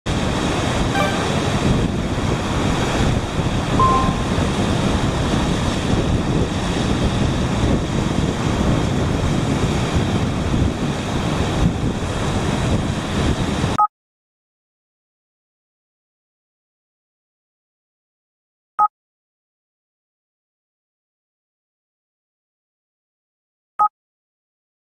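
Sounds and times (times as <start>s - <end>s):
wind buffeting microphone: 0.1s - 13.8s.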